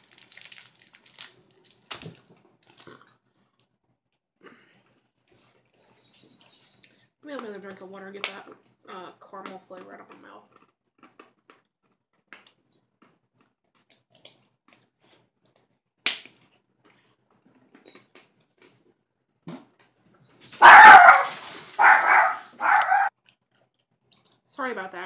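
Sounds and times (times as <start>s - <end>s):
dog barking: 20.6s - 23.1s.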